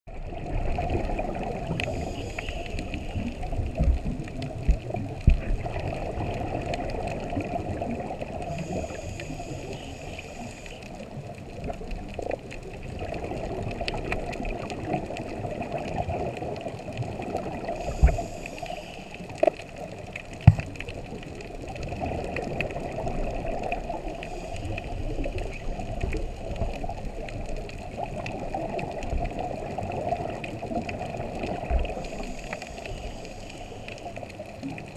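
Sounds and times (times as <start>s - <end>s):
diver breathing through regulator: 1.8s - 3.4s, 8.4s - 10.9s, 17.7s - 19.4s, 24.0s - 25.4s, 31.9s - 34.3s.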